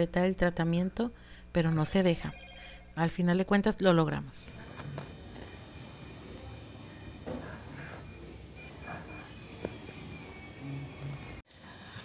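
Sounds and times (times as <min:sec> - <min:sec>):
thermometer high beeps: 0:02.2 - 0:03.0, 0:04.4 - 0:11.4.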